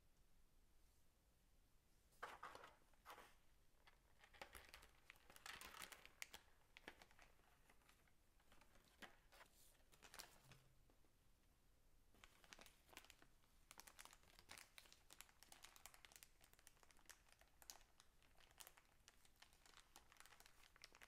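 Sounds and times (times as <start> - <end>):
plastic bag crinkling: 4.0 - 10.6, 12.2 - 21.0.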